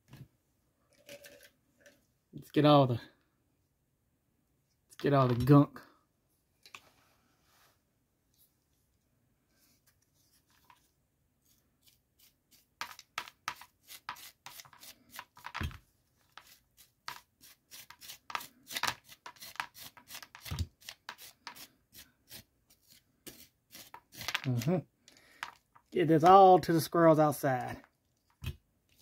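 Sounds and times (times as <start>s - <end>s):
scraping pumpkin pulp: 16.3s - 24.8s.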